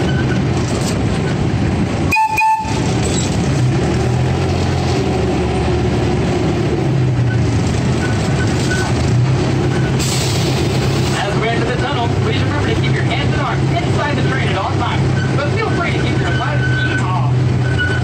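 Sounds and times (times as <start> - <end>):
train engine hum: 0.0 - 18.0
train rolling rumble: 0.0 - 18.0.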